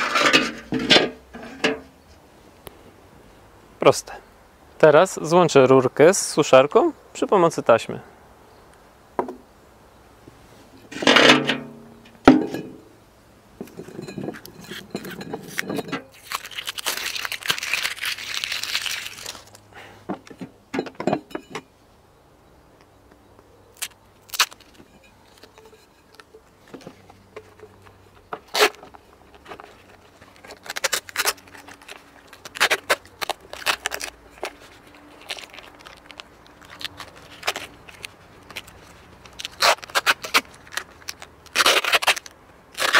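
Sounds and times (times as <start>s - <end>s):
tape crinkling and tapping: 13.6s - 20.5s, 23.0s - 42.9s
tape ripping off roll: 15.4s - 19.7s, 23.8s - 24.8s, 28.4s - 42.9s.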